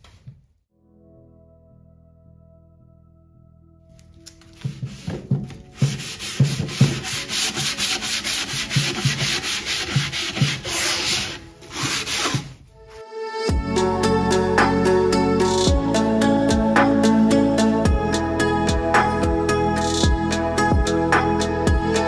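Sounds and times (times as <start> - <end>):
background music: 0.7 - 22.0
sponge scrubbing wood: 4.6 - 12.5.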